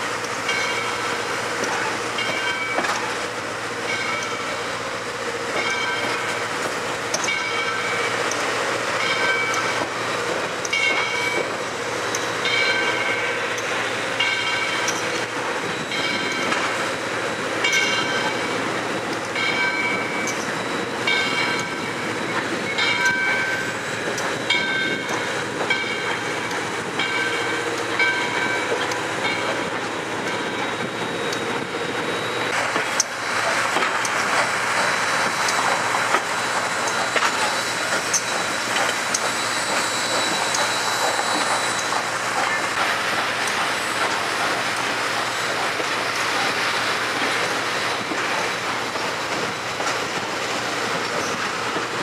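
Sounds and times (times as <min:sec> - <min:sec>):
train rumbling on track: 0:00.0 - 0:52.0
wheels clacking over rail joints: 0:00.0 - 0:52.0.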